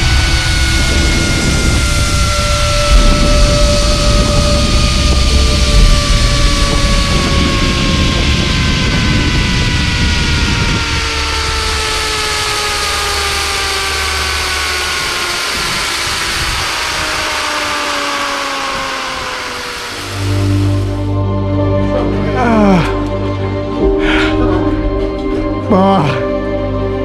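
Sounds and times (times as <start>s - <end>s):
wind rushing on microphone: 0.0s - 21.2s
zipline pulleys whining on cable: 0.0s - 23.9s.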